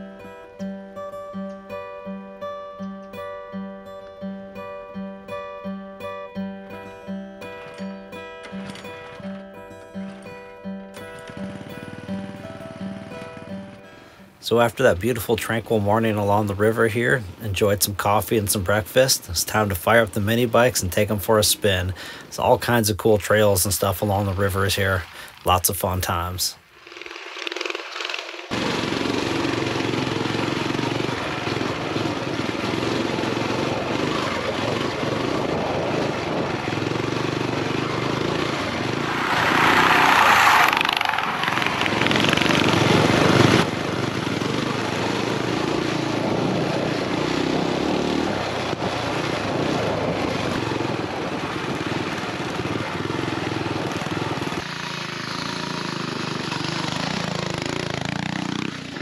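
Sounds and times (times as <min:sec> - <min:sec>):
small motorcycle engine running: 0:07.5 - 0:14.3, 0:26.6 - 0:59.0
wind rushing: 0:33.7 - 0:44.2, 0:45.4 - 0:53.1.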